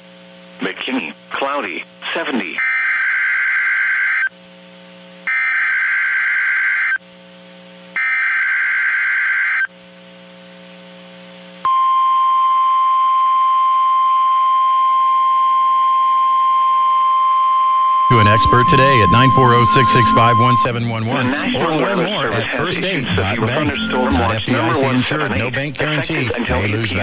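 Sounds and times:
high-pitched warning alarm tone: 0:18.1 - 0:22.1.

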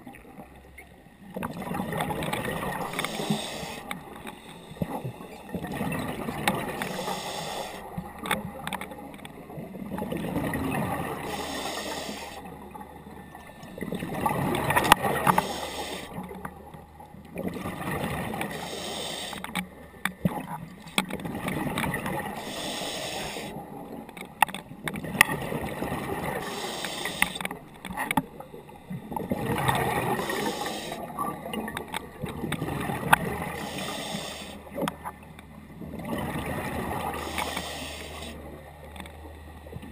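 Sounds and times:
diver breathing through regulator: 0:02.8 - 0:05.4, 0:06.7 - 0:07.9, 0:11.1 - 0:12.5, 0:15.0 - 0:16.3, 0:18.4 - 0:19.6, 0:22.2 - 0:23.6, 0:26.3 - 0:27.5, 0:29.9 - 0:31.1, 0:33.4 - 0:34.7, 0:37.0 - 0:38.4
rush of bubbles: 0:17.4 - 0:18.4, 0:29.2 - 0:31.7.

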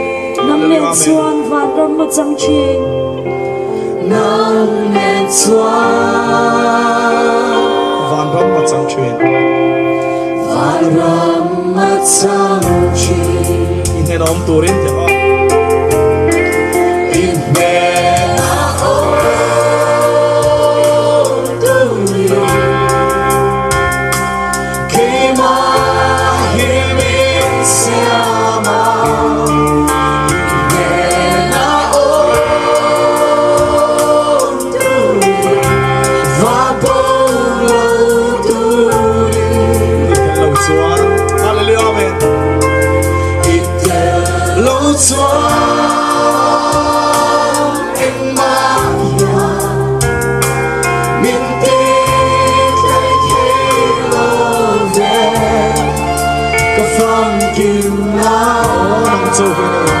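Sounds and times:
person singing into a microphone: 0:00.0 - 0:03.2, 0:03.8 - 0:09.2, 0:10.2 - 0:15.1, 0:16.5 - 0:23.9, 0:24.6 - 1:00.0
bass notes: 0:00.0 - 1:00.0
keyboard: 0:00.0 - 1:00.0
drums and cymbals ticking: 0:12.1 - 1:00.0.

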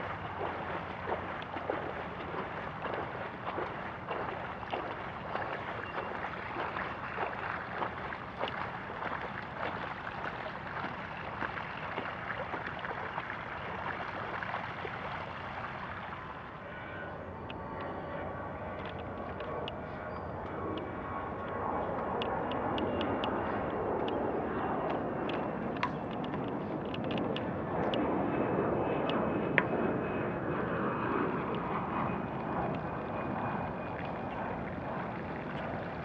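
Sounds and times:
bicycle tyres splashing through water: 0:00.0 - 0:16.4.

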